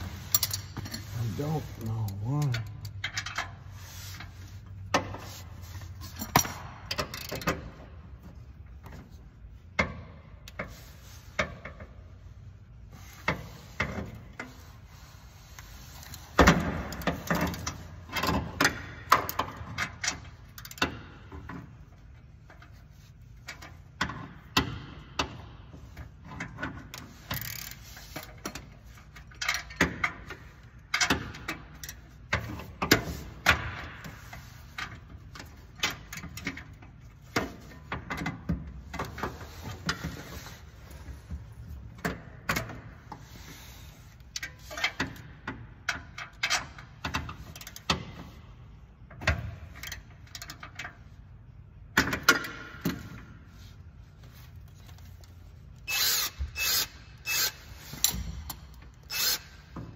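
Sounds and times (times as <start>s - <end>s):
wrench and ratchet clicking on nut: 0.2s - 3.6s, 6.1s - 7.8s, 16.0s - 21.6s, 26.2s - 40.5s, 44.2s - 48.1s, 49.1s - 51.1s, 54.8s - 59.9s.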